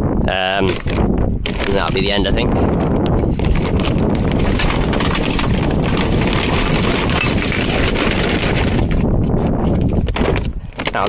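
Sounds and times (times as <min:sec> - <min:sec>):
paper bag rustling: 0:00.6 - 0:11.0
cans and bottles clattering: 0:03.6 - 0:09.0.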